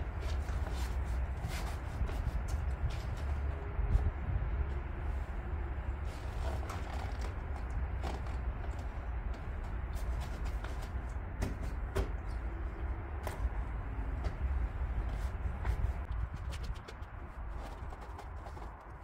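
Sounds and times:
steady low rumble: 0.0 - 19.0
clicks rustles and creaks: 6.2 - 13.6, 15.6 - 19.0.

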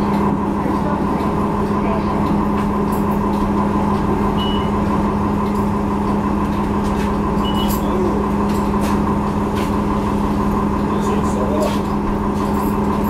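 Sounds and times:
bus engine and ventilation hum: 0.0 - 13.0
short high beeps: 4.4 - 4.8, 7.4 - 7.9.

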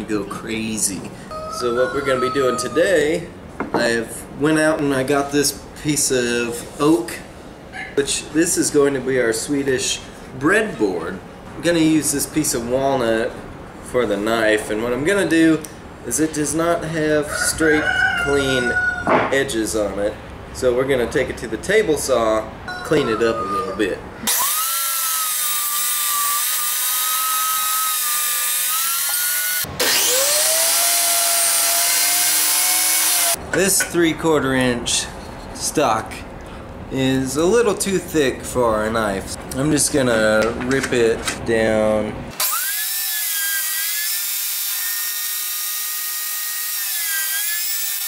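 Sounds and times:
table saw whine: 24.2 - 33.4, 42.4 - 48.0.

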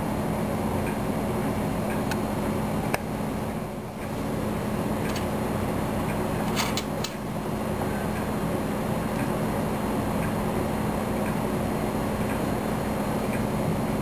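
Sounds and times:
background hum with low drone: 0.0 - 14.0.

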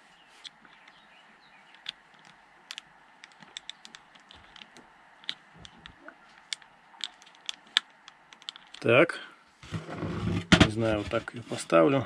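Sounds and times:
cable connector clicks and taps: 1.7 - 8.8.

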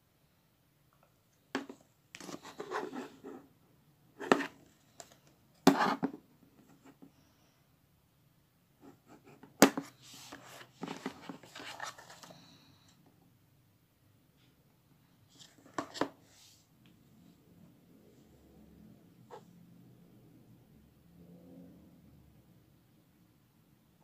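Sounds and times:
rustling and scraping: 1.6 - 3.5, 9.7 - 12.6.

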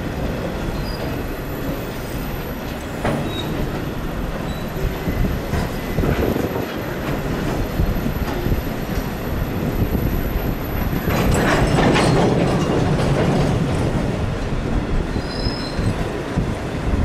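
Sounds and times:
freight train wheels rumbling: 0.0 - 17.0
high wheel squeals: 4.4 - 6.1, 15.1 - 16.0.

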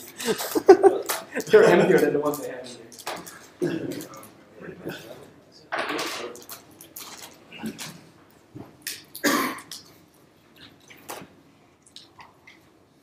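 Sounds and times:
person coughing: 3.6 - 4.2, 9.2 - 9.7.

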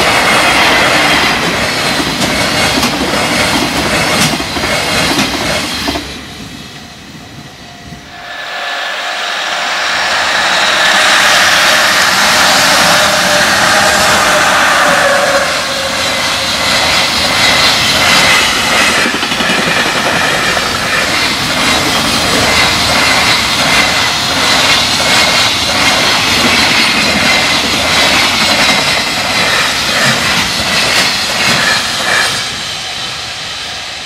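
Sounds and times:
freight train passing: 0.0 - 34.0
level-crossing alarm ringing: 6.7 - 24.7.

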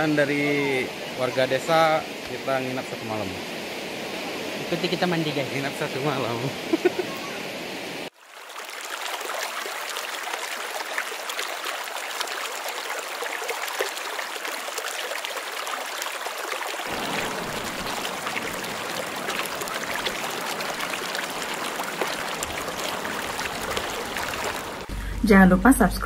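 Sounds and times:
river babbling over stones: 0.0 - 24.9.

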